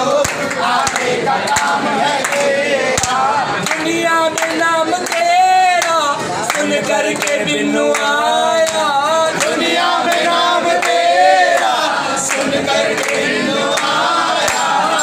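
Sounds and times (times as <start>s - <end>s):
hand claps: 0.0s - 15.0s
men singing in unison: 0.0s - 15.0s.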